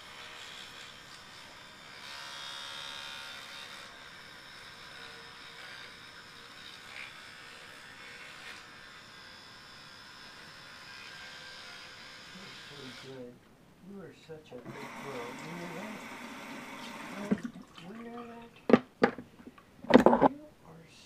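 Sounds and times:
electric toothbrush buzzing: 0.0 - 13.3, 14.7 - 17.5.

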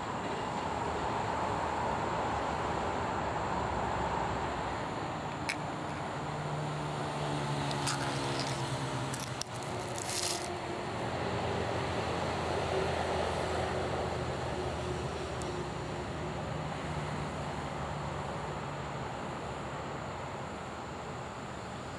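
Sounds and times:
metal lid tearing: 7.6 - 10.6.

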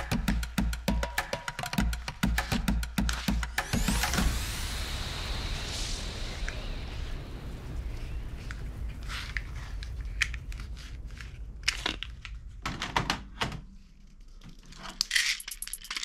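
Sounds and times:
plastic toys clicking and clattering: 14.4 - 16.0.

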